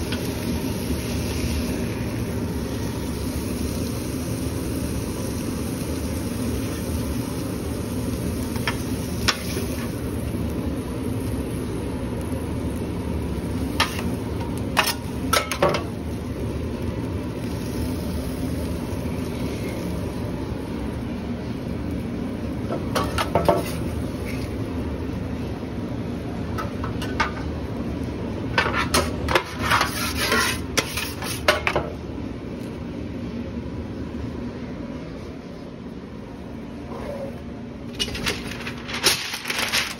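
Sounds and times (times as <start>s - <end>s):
metal utensils clinking on griddle: 8.6s - 10.0s, 13.8s - 14.1s, 14.7s - 16.0s, 22.9s - 23.8s, 28.6s - 31.8s.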